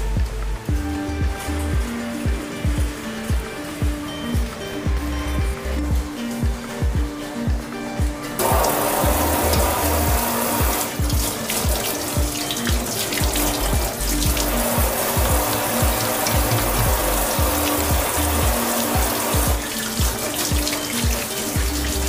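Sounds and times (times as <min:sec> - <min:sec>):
background music with beat: 0:00.0 - 0:22.0
hands washed under water: 0:00.0 - 0:22.0
water running into steel sink: 0:08.3 - 0:22.0
kitchen tap turned on: 0:08.4 - 0:22.0.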